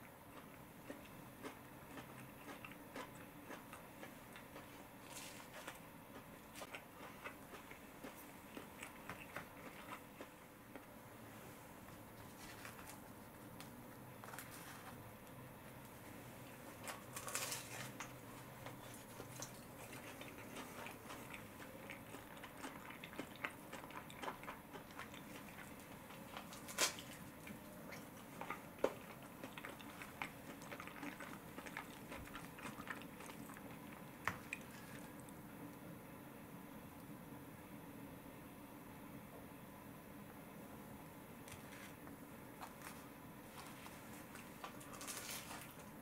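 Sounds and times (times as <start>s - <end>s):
toasted bread crunching: 16.8s - 35.2s, 44.3s - 46.0s.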